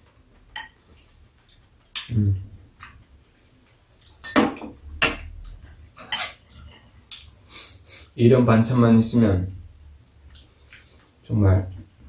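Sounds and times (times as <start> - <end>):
cutlery clinking on ceramic bowls: 0.5 - 0.8, 4.0 - 5.2, 6.0 - 6.9.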